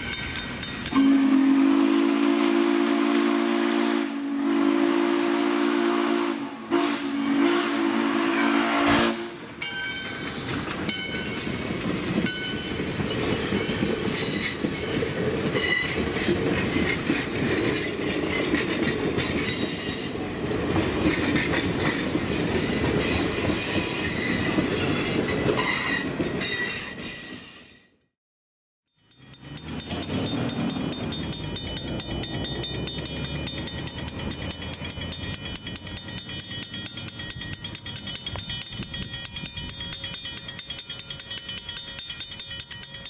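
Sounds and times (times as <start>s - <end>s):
wheels clicking over rail joints: 0.0s - 1.5s, 9.6s - 27.2s, 28.9s - 43.0s
steam locomotive whistle: 0.9s - 9.6s.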